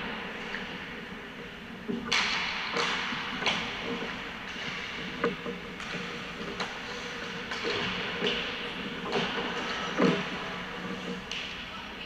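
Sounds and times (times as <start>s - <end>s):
pucks hitting boards: 2.0s - 10.4s
sticks striking pucks: 2.0s - 11.6s.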